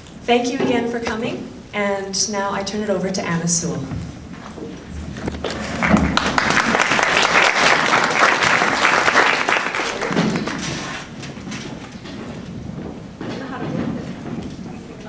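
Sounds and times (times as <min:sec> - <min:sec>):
audience applauding: 0:05.2 - 0:11.3.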